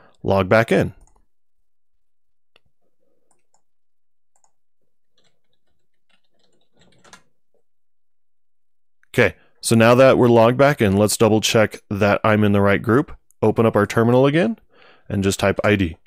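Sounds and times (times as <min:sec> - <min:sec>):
keyboard and mouse clicks: 0:01.0 - 0:01.3, 0:02.5 - 0:03.7, 0:04.3 - 0:07.6.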